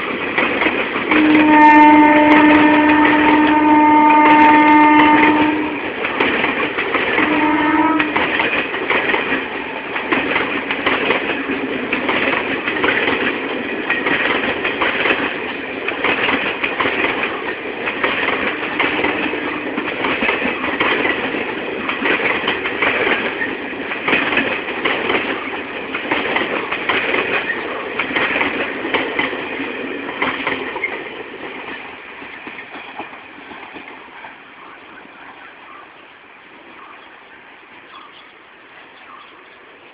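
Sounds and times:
train wheels clattering on rails: 0.0s - 39.9s
locomotive horn: 1.1s - 5.9s, 7.2s - 8.4s, 18.4s - 19.8s.

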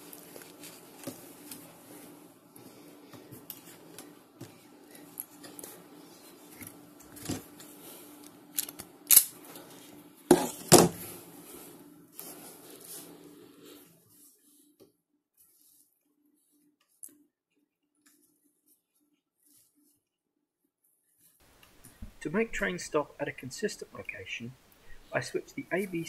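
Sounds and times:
low steady hum: 21.4s - 26.0s.

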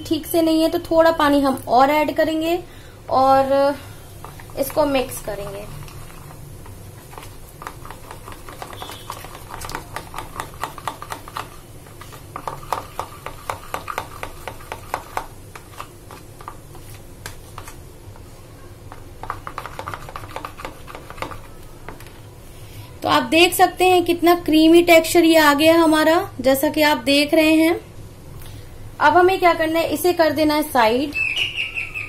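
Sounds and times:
spoon whisking batter in bowl: 4.1s - 17.8s, 18.9s - 22.0s.

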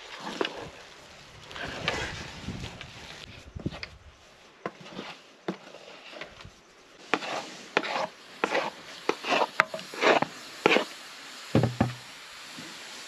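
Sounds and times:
wooden stick knocking on a pot: 11.6s - 12.0s.

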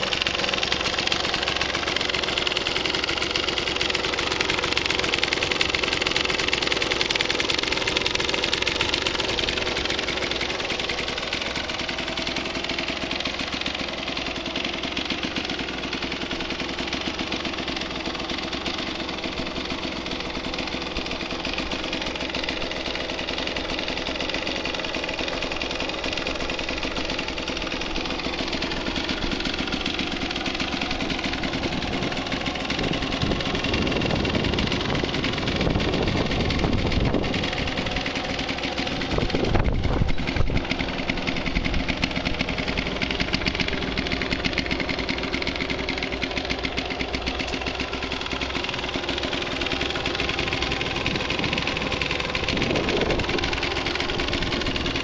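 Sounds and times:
two-stroke engine idling: 0.0s - 55.0s.

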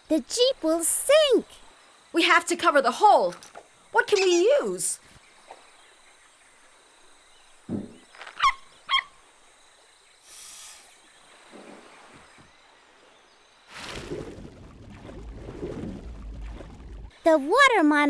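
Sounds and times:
forest ambience: 0.0s - 18.0s
wavering squeaky calls: 4.0s - 4.9s, 8.2s - 9.2s
soft low thump: 7.7s - 8.1s
brief high hiss: 10.2s - 11.0s.

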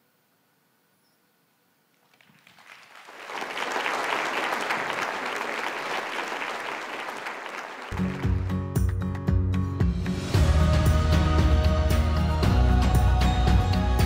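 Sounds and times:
audience applauding: 2.0s - 9.2s.

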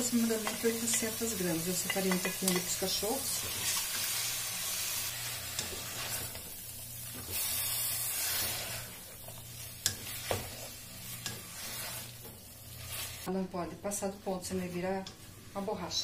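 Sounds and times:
wooden spoon stirring: 0.0s - 4.2s, 7.1s - 13.3s
food sizzling in a pot: 0.0s - 16.0s.

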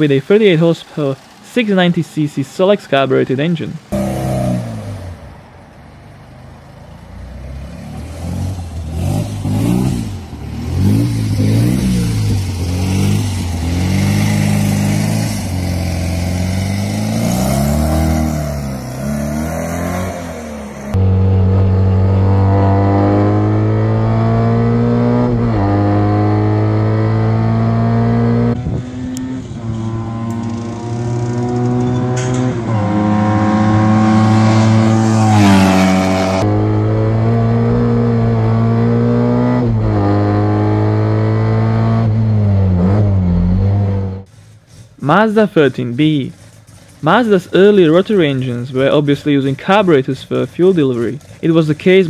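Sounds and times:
small car engine revving: 0.4s - 5.6s, 6.2s - 44.3s.

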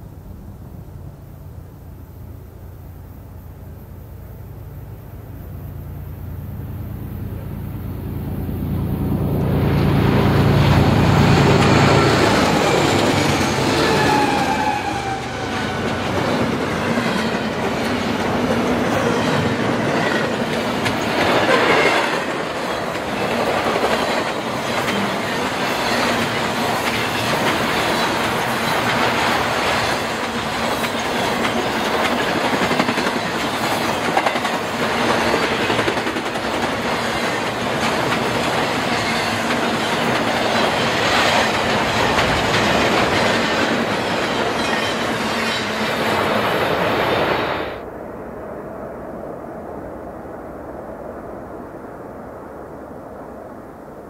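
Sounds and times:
diesel locomotive engines rumbling: 0.0s - 49.5s
wheels clattering over rail joints: 10.1s - 46.6s.

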